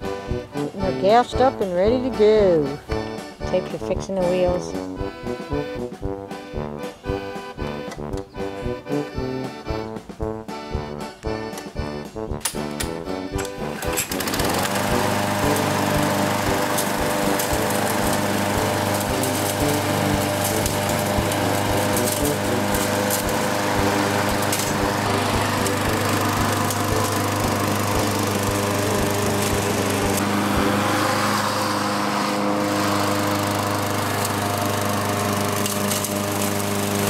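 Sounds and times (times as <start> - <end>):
lawn mower engine running: 11.4 - 37.0.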